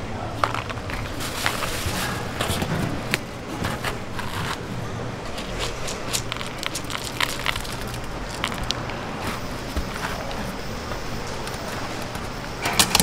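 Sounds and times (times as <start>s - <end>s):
vegetables piled into mesh basket: 5.3s - 10.6s.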